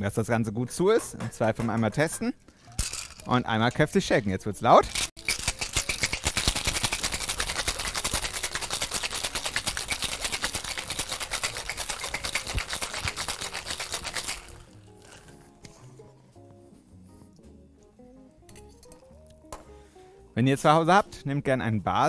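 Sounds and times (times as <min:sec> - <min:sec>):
ice rattling in a metal shaker: 0:02.8 - 0:03.4, 0:04.8 - 0:15.2.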